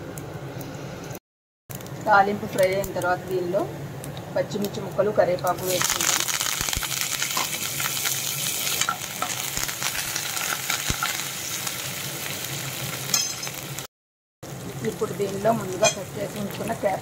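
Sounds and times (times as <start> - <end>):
oil sizzling in a pan: 5.5 - 17.0.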